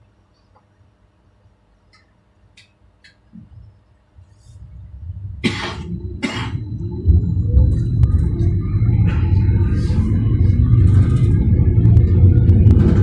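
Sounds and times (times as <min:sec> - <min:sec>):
tram motors and wheels rumbling: 0:02.6 - 0:13.0
short harsh noise bursts: 0:04.2 - 0:08.4.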